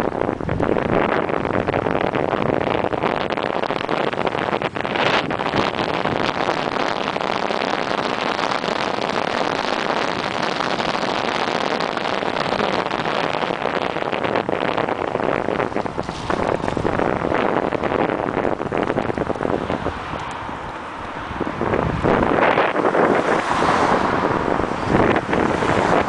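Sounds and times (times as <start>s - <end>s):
bicycle rolling and rattling: 0.0s - 26.0s
wind over microphone: 0.0s - 26.0s.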